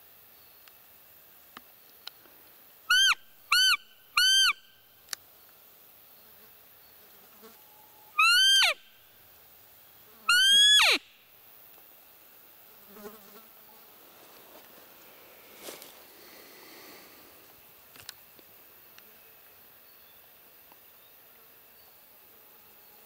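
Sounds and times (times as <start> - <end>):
deer call squeaks: 2.9 - 4.6, 8.2 - 8.8, 10.3 - 11.0.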